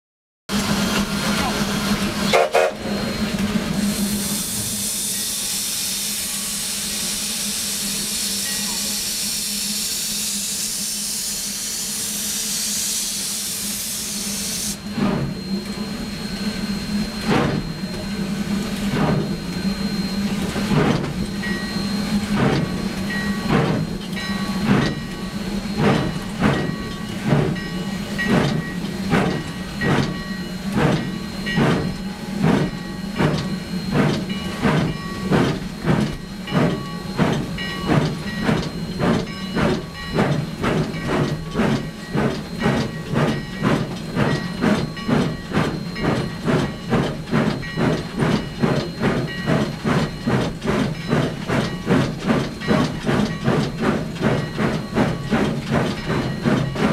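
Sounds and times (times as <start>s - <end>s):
steam locomotive exhaust chuffs: 0.5s - 56.9s
loud steam hiss: 0.6s - 15.0s.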